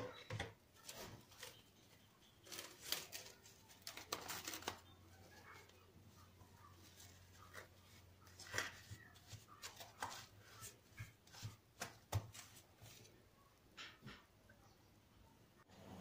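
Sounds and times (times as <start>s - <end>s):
plastic cling film crinkling: 0.8s - 5.8s.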